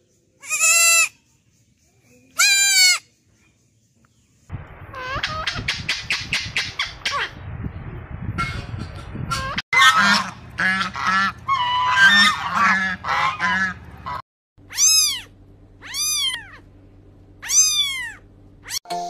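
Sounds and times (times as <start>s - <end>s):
squawking animal calls: 2.4s - 3.1s, 11.5s - 16.7s, 17.4s - 18.8s
cat meowing: 14.7s - 16.6s, 17.4s - 18.8s.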